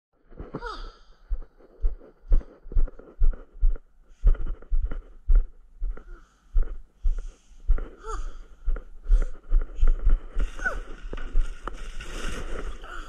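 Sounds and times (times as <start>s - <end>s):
footsteps on deck and paving: 1.3s - 8.0s.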